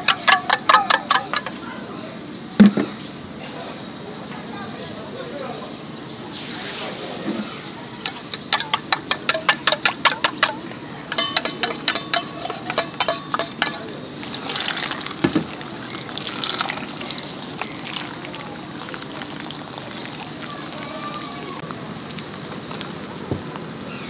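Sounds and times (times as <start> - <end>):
spoon clinking against steel bowl: 0.0 - 1.6, 8.1 - 20.2
egg sizzling on griddle: 11.1 - 24.0.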